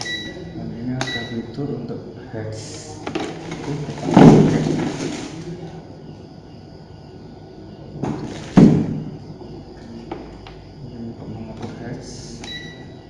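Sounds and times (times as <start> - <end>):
loud thump with rustle: 4.0 - 5.3, 8.0 - 9.2.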